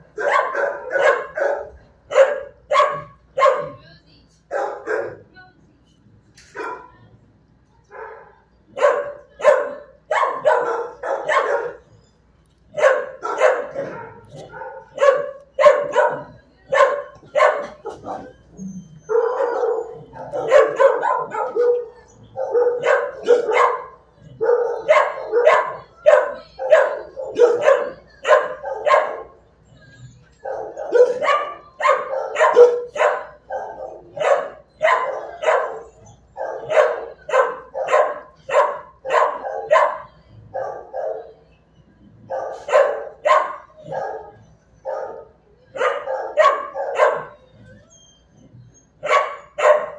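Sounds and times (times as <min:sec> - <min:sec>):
dog barking: 0:00.1 - 0:03.8, 0:04.5 - 0:05.3, 0:06.6 - 0:06.9, 0:08.0 - 0:11.9, 0:12.7 - 0:18.4, 0:19.1 - 0:29.4, 0:30.4 - 0:41.4, 0:42.3 - 0:47.5, 0:49.0 - 0:49.9.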